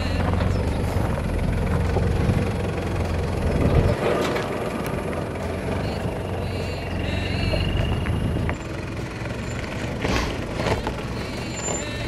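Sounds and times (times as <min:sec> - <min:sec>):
car engine at low revs: 0:00.0 - 0:12.0
stones crunching under tyres: 0:09.3 - 0:12.0.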